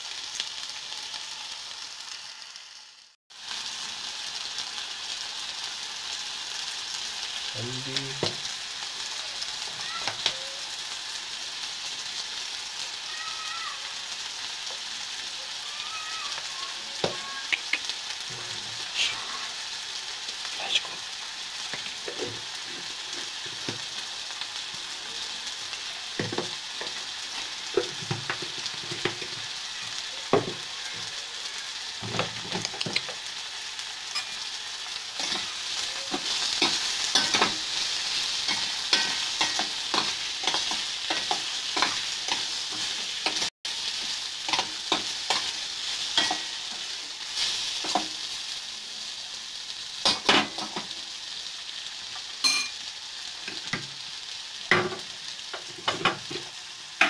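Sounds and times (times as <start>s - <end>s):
vegetables sizzling in oil: 0.0s - 57.0s.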